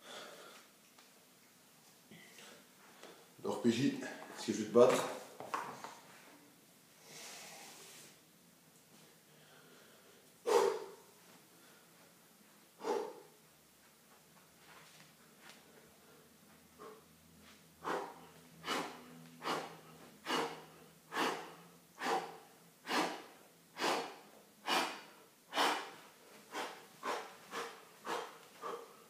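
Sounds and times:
man breathing hard: 0.0s - 0.7s, 9.2s - 12.1s, 12.8s - 13.4s, 15.6s - 29.0s.

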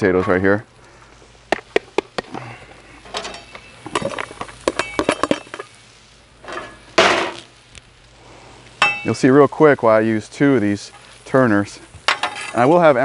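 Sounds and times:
steel turner scraping and knocking: 3.0s - 5.7s, 12.1s - 12.9s
potatoes clinking onto griddle: 3.0s - 5.8s, 8.8s - 9.3s, 12.0s - 13.0s.

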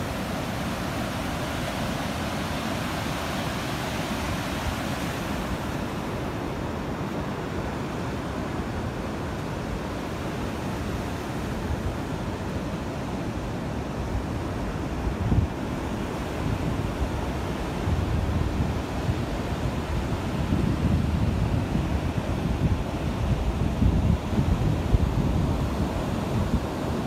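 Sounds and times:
rushing water: 0.0s - 27.0s
wind roaring: 13.6s - 27.0s
wind buffeting microphone: 14.8s - 27.0s.

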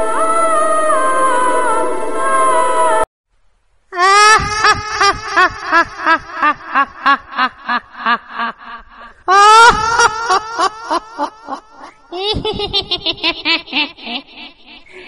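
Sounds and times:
cartoon ghost cackling laugh: 4.0s - 15.0s.

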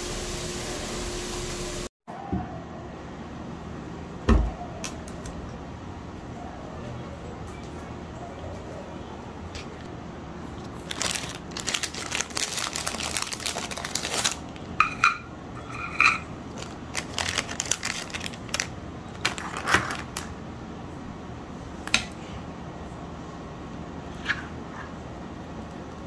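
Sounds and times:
plastic packet crinkling: 10.6s - 14.8s, 16.5s - 20.3s.

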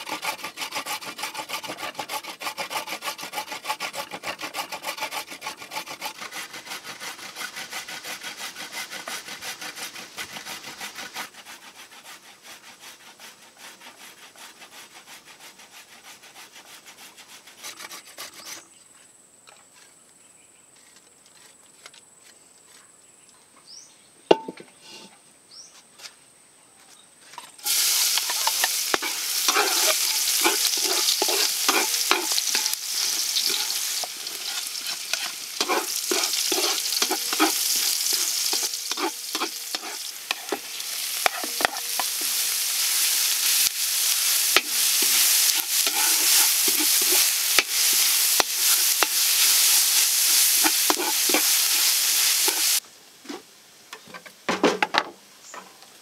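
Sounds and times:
root rasped on metal grater: 0.0s - 18.6s, 27.7s - 52.8s
oil sizzling in a wok: 27.6s - 52.8s
wooden spatula stirring: 27.6s - 52.8s.

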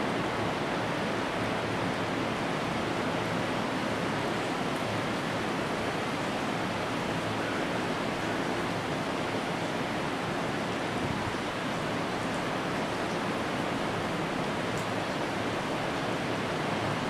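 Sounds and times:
rain: 0.0s - 17.0s
wind: 0.0s - 17.0s.

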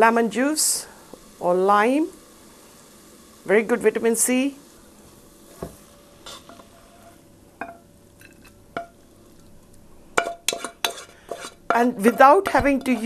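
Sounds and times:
spoon knocking against pan: 8.8s - 9.0s, 10.2s - 11.0s
wooden spoon stirring in a pan: 10.2s - 13.0s.

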